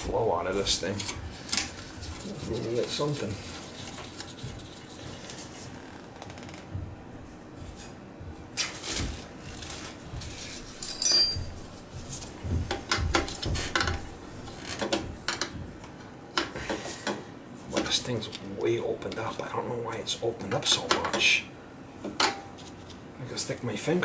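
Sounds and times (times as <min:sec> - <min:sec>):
sharp metallic clink: 0:10.8 - 0:11.5.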